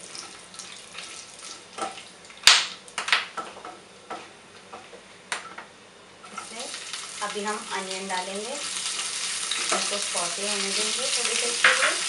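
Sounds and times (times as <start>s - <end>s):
spices sizzling in hot oil: 6.2s - 12.0s.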